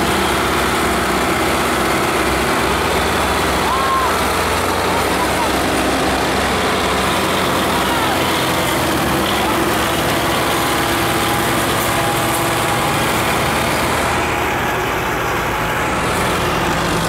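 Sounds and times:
tractor diesel engines under load: 0.0s - 17.0s.

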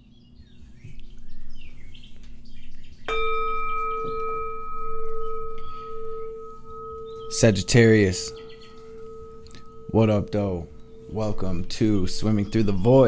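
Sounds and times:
faint birdsong chirps: 0.0s - 13.0s
singing bowl ringing: 3.1s - 13.0s.

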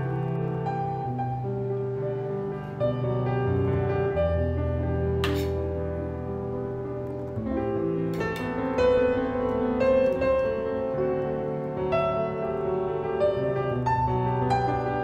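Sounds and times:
slow piano music: 0.0s - 15.0s.

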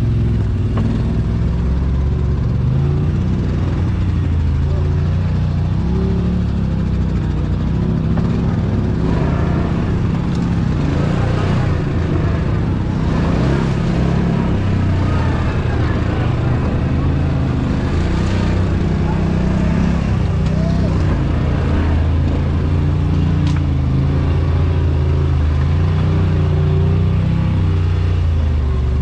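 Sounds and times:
atv engine droning: 0.0s - 29.0s.

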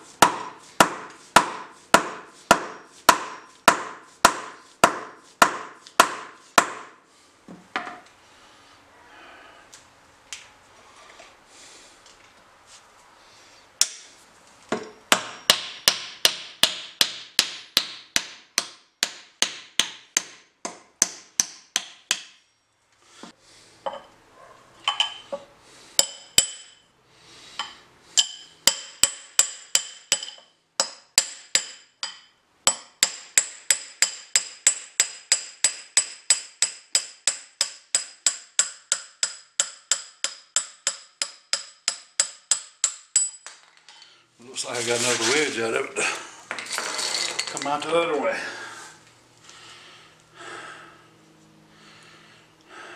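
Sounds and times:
hammer striking metal: 0.2s - 6.9s, 14.8s - 22.6s, 26.0s - 26.9s, 27.6s - 43.5s.

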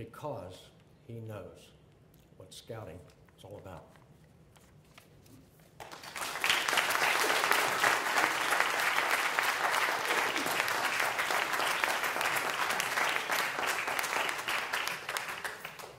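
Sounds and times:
audience applauding: 5.8s - 15.9s.

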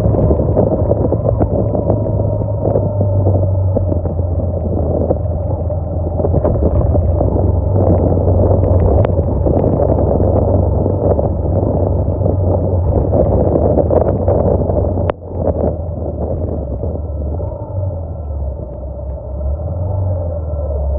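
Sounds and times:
motorcycle engine running: 0.0s - 19.4s
wind buffeting microphone: 0.0s - 20.9s.

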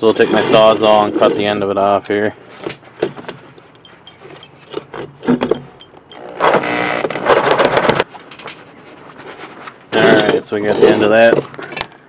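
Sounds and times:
reciprocating saw cutting metal: 6.1s - 7.1s.

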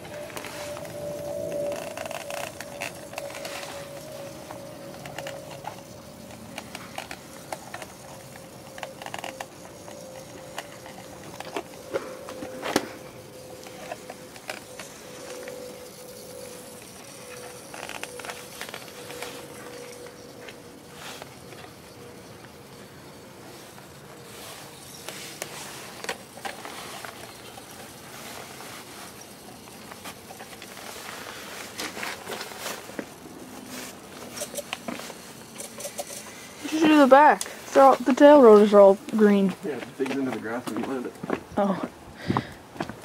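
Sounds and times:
faint hum: 0.0s - 40.0s
plastic clicks and rattles: 0.3s - 12.9s.

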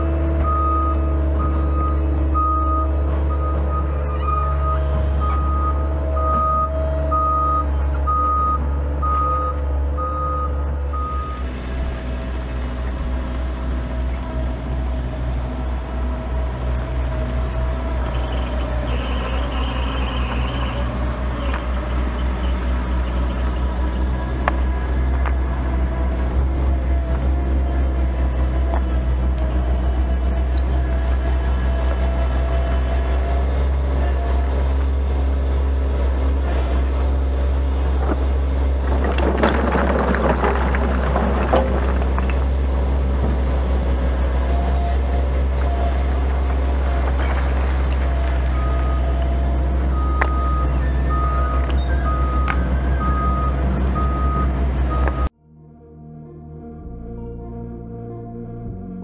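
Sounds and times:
diesel engine running: 0.0s - 55.4s
stones clacking: 38.8s - 42.8s, 46.3s - 48.6s.

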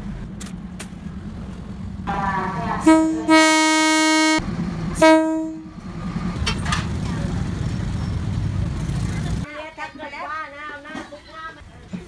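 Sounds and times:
engine rumble: 0.0s - 12.0s
train horn blasts: 2.8s - 4.4s, 5.0s - 5.7s.

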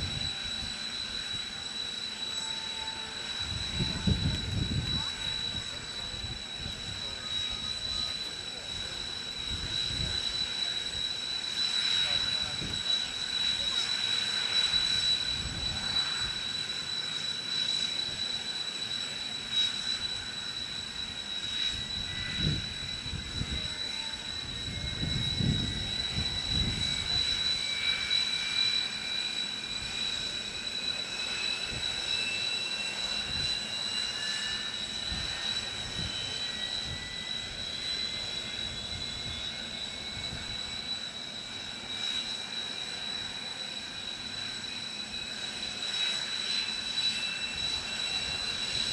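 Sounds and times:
jet turbine whine rising: 0.0s - 48.9s
steady high-pitched whine: 0.0s - 48.9s
wind rumble on microphone: 3.4s - 6.9s, 21.8s - 23.7s, 24.5s - 27.4s.

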